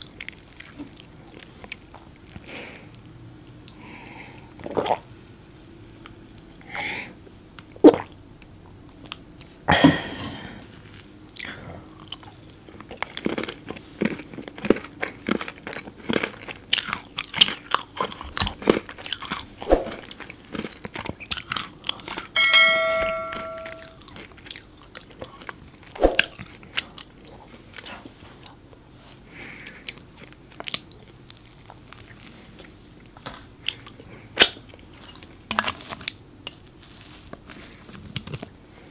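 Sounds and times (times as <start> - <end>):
crunching and wet chewing: 0.0 - 6.6, 7.6 - 9.6, 10.6 - 22.4, 24.0 - 38.9.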